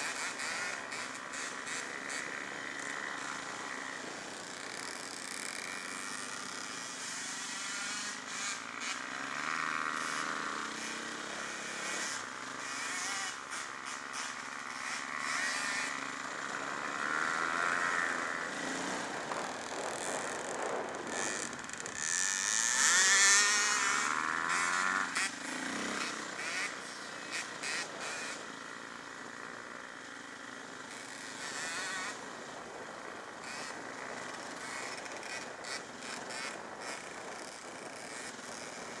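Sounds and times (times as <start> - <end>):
dirt bike engine running: 0.0 - 39.0.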